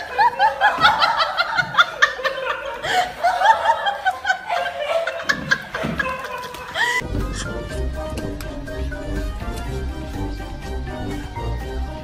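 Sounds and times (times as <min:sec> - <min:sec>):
high-pitched laughter: 0:00.0 - 0:07.5.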